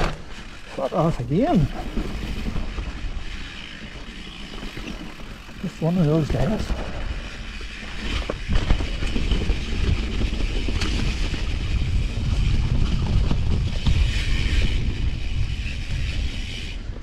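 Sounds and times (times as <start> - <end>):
bike tyres rumbling on trail: 0.0 - 17.0
bike knocks and rattles: 1.6 - 16.5
wind buffeting microphone: 6.2 - 17.0.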